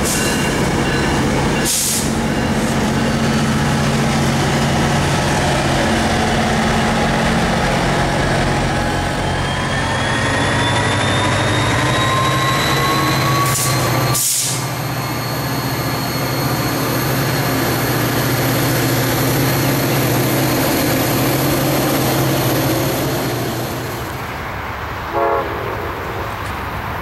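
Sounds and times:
diesel locomotive running: 0.0s - 27.0s
air brake hiss: 1.7s - 2.2s, 13.5s - 14.8s
rising whine: 6.0s - 17.4s.

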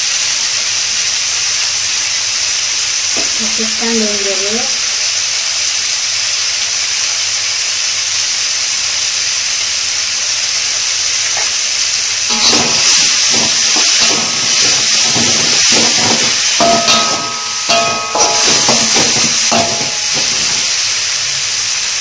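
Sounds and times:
food sizzling in a wok: 0.0s - 22.0s
spatula scraping a wok: 12.3s - 20.8s.

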